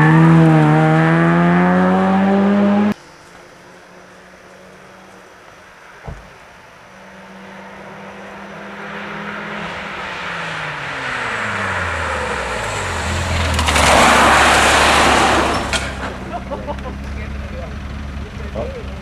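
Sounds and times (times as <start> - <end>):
rally car engine: 0.0 - 19.0
tyres sliding on gravel: 10.4 - 17.5.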